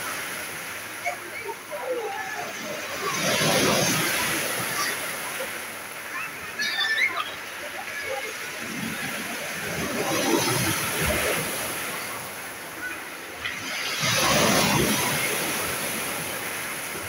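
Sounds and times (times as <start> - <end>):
waves washing over pebbles: 0.0 - 17.0.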